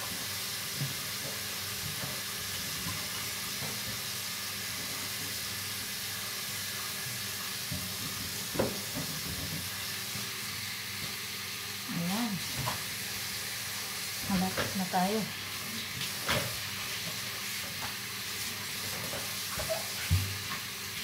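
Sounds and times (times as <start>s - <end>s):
tap running into steel sink: 7.7s - 9.8s.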